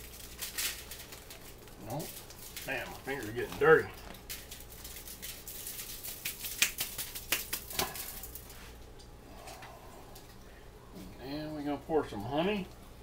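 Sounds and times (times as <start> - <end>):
aluminium foil crinkling: 0.0 - 9.1.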